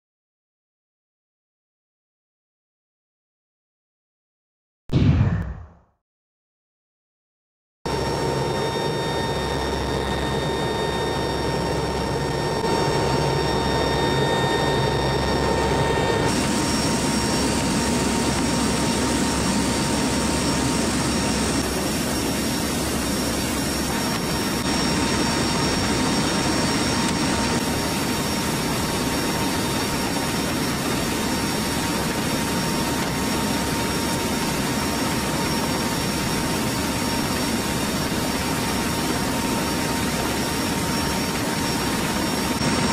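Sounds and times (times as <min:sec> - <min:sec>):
turboprop engines droning: 0:07.9 - 0:42.9
high whine: 0:40.5 - 0:42.9.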